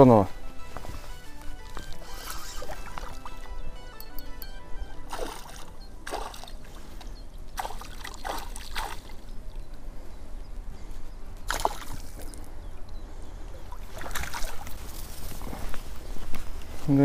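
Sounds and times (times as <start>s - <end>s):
fish thrashing splashes: 5.1s - 6.7s, 7.5s - 9.3s, 11.5s - 12.3s, 13.8s - 15.1s.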